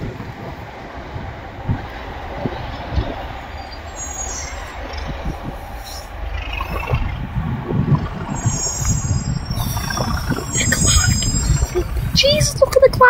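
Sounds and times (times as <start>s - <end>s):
diesel locomotive engine rumble: 0.0s - 13.0s
high wheel squeal: 2.6s - 12.7s.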